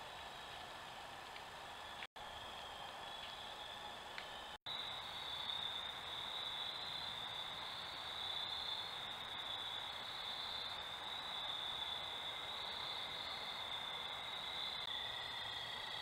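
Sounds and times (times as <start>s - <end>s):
crickets chirring: 4.7s - 16.0s.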